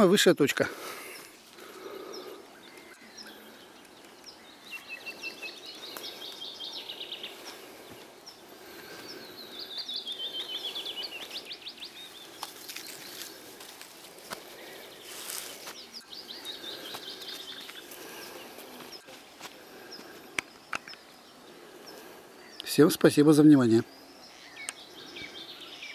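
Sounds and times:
songbird singing: 0.0s - 25.9s.

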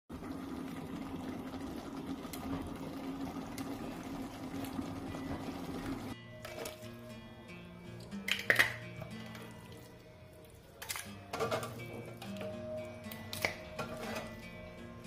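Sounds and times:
curry bubbling in a pot: 0.1s - 6.2s.

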